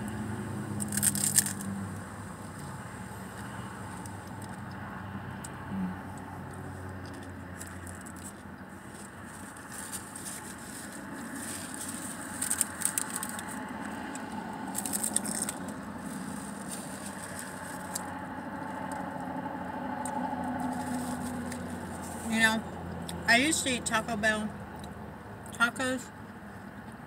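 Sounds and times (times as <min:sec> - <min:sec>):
crunching while eating: 0:00.0 - 0:23.2
paper wrapper crinkling: 0:00.8 - 0:01.8, 0:07.1 - 0:18.2, 0:20.5 - 0:22.3.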